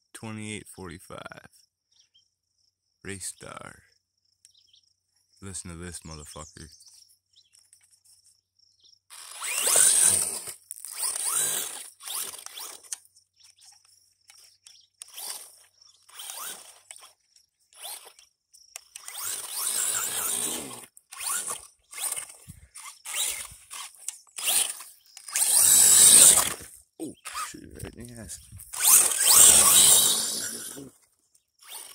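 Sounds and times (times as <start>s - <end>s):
electric motor whining: 9.1s - 13.0s, 13.6s - 27.5s, 28.4s - 30.9s, 31.6s - 31.9s
tyres spraying loose sand: 27.6s - 30.9s.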